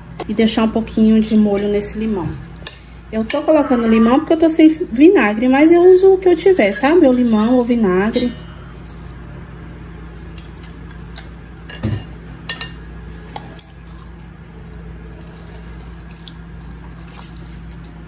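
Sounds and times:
juice dripping into bowl: 13.8 - 18.0.

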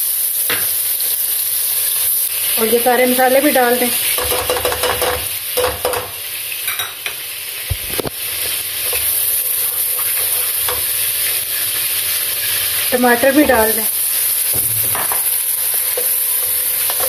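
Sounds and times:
food sizzling in hot oil: 0.0 - 17.0
spoon knocking against pot: 4.2 - 7.0
wooden spoon scraping pot: 8.4 - 11.4.

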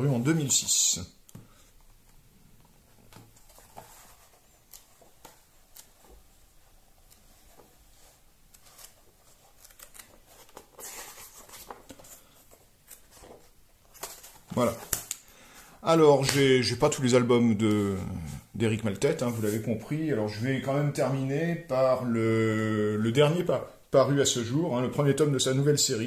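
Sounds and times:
paper pages being turned: 3.0 - 15.2
pages fanned through: 3.1 - 15.3.

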